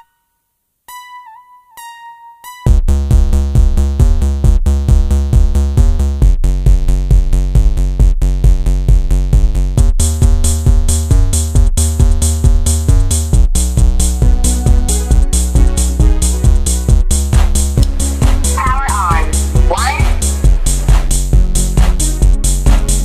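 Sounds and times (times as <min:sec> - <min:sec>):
electronic music with drum-machine beat: 0:02.5 - 0:23.0
bright high rhythm part: 0:14.3 - 0:21.4.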